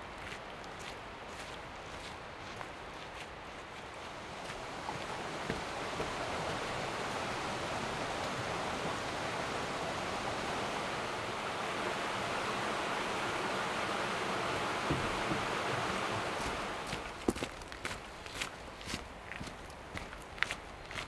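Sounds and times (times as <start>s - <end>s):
creek rushing: 0.0s - 18.9s
footsteps on dirt trail: 0.2s - 7.6s, 14.9s - 21.0s.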